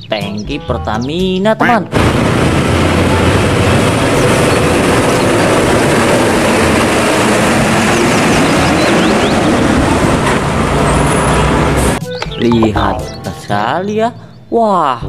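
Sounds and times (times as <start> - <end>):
other vehicles passing: 1.9 - 12.0
tanker truck driving past: 1.9 - 12.0.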